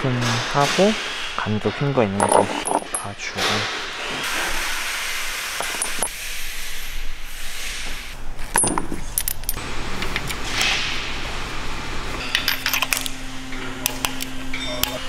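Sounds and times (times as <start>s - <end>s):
metal tools clinking and rattling: 1.6s - 3.6s, 8.4s - 9.6s, 12.2s - 13.2s, 13.8s - 15.0s.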